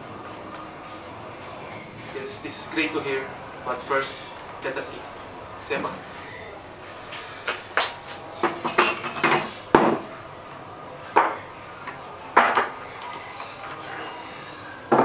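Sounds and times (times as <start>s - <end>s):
cups and teapot clinking: 8.4s - 10.1s.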